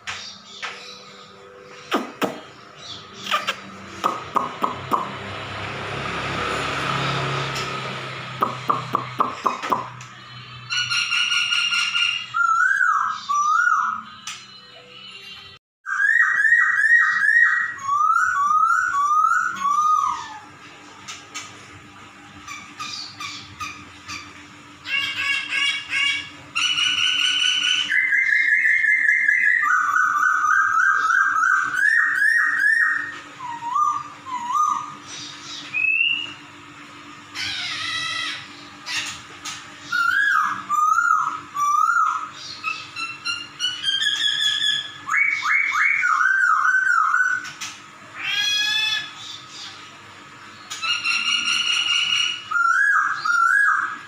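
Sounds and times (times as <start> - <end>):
cat-like bird notes: 0.0 - 5.8, 6.9 - 54.0
bird singing whistled phrases: 10.6 - 15.1, 15.9 - 20.5, 24.9 - 36.4, 39.8 - 47.6, 50.5 - 54.0.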